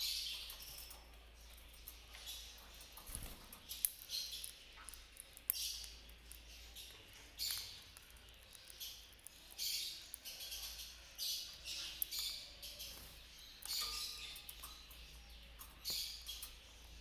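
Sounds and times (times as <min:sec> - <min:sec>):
conures chirping: 0:00.0 - 0:17.0.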